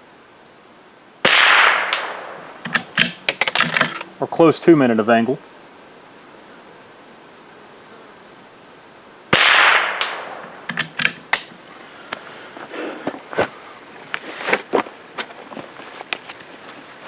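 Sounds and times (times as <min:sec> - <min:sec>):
high insect buzz: 0:00.0 - 0:17.0
rifle shot: 0:01.2 - 0:04.0, 0:09.3 - 0:11.5.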